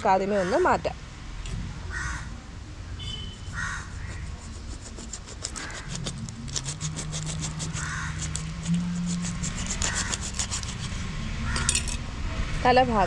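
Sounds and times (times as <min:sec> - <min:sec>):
crow cawing: 0:01.9 - 0:02.3, 0:03.5 - 0:04.0, 0:07.8 - 0:08.2, 0:11.4 - 0:11.8
knife sawing through fish: 0:03.5 - 0:11.6.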